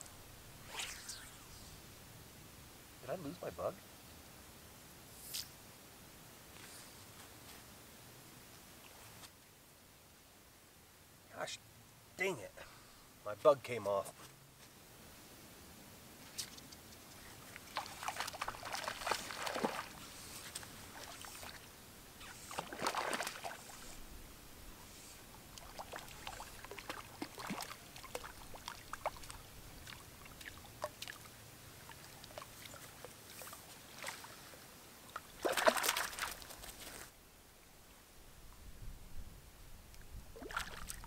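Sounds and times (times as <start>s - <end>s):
small ticks: 16.2s - 17.7s
fish splashing in water: 17.6s - 21.6s, 22.3s - 23.9s, 25.5s - 31.3s, 35.3s - 36.8s.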